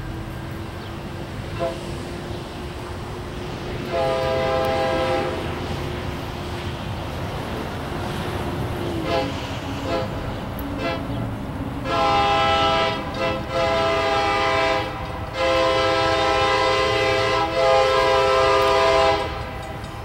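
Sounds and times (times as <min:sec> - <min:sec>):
locomotive air horn: 0:01.5 - 0:02.3, 0:03.8 - 0:05.7, 0:09.0 - 0:10.2, 0:10.8 - 0:11.1, 0:11.8 - 0:19.8.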